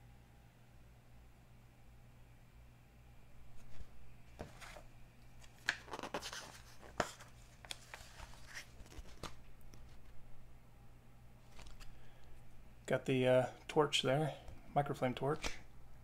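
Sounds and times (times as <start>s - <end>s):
magazine pages rustling: 3.5s - 10.2s, 11.4s - 12.4s.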